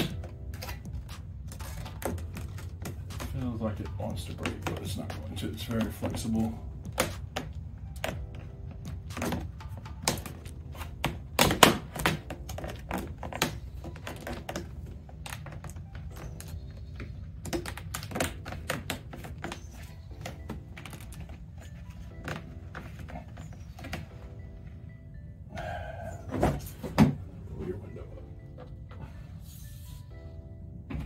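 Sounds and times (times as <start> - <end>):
plastic visor clicking: 9.1 - 21.4.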